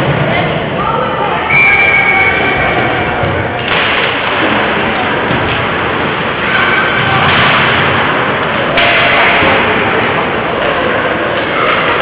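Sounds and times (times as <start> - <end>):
ice rink and crowd noise: 0.0 - 12.0.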